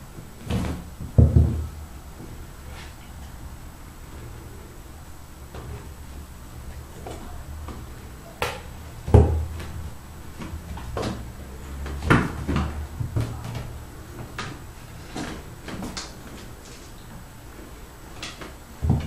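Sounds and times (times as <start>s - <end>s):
kittens knocking and thumping: 0.5s - 1.8s.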